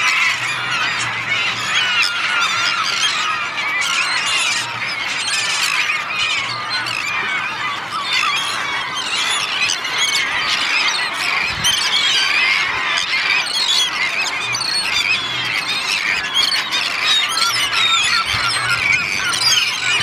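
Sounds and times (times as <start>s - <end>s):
flock of gulls calling: 0.0s - 20.0s.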